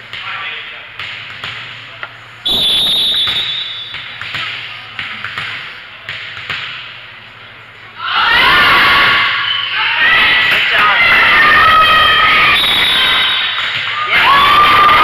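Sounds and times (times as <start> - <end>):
taps and thuds in gym: 0.0 - 2.2, 3.1 - 7.0
referee's whistle: 2.4 - 4.1, 11.8 - 13.6.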